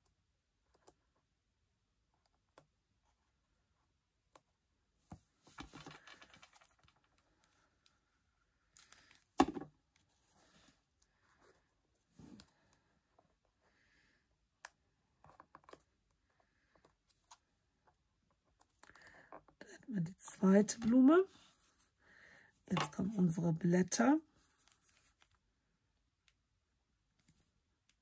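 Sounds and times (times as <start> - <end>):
paper rustling: 5.4 - 7.4.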